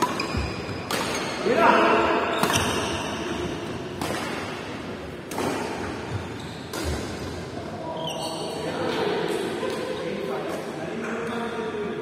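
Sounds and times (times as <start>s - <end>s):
racket hitting shuttlecock: 0.0s - 1.4s, 2.3s - 7.4s.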